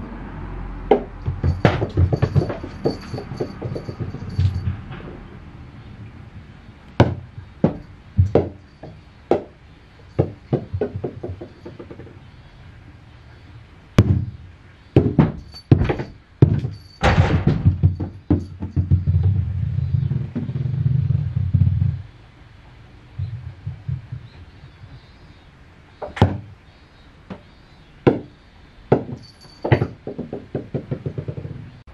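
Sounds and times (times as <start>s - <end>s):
rubber balls bouncing on wooden floor: 0.9s - 4.6s, 7.0s - 12.3s, 15.0s - 22.1s, 23.2s - 25.0s, 28.9s - 31.9s.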